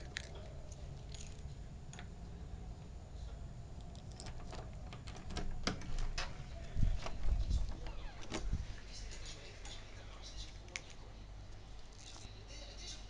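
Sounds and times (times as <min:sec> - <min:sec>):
low room rumble: 0:00.0 - 0:13.0
door knob clicks and rattles: 0:04.0 - 0:06.4.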